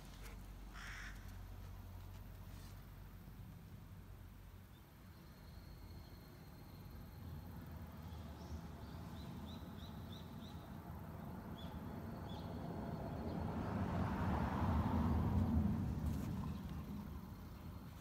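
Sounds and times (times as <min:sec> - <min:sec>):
passing vehicle rumble: 0:07.4 - 0:18.0.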